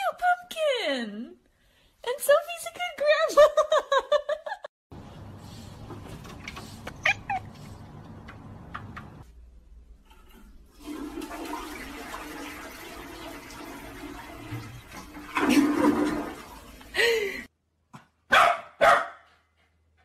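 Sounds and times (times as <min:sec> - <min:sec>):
toilet flushing: 0:10.1 - 0:17.5
small dog barking: 0:18.3 - 0:19.3.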